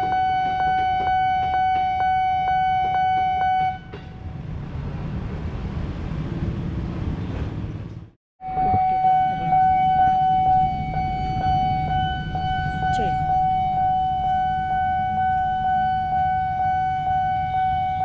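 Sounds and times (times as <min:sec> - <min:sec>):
level crossing alarm: 0:00.0 - 0:04.0, 0:08.4 - 0:18.0
electric train rumbling past: 0:00.0 - 0:18.0.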